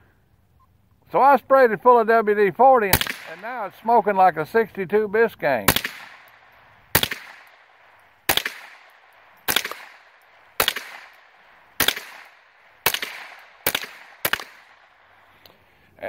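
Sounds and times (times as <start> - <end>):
rifle shots: 2.9 - 4.0, 5.6 - 15.3.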